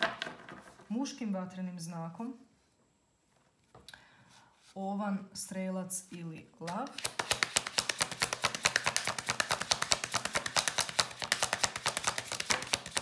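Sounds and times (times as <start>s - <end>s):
cards being shuffled: 6.6s - 13.0s.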